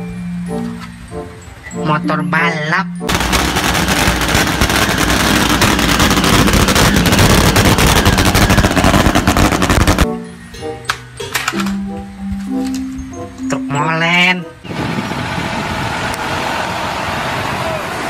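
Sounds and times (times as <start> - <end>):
background music: 0.0 - 14.7
motorcycle engine crackling loudly: 3.1 - 10.0.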